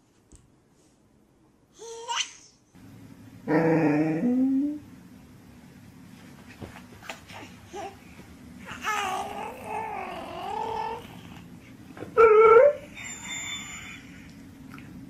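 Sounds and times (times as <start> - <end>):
dog whining: 8.7 - 11.4, 12.2 - 13.9.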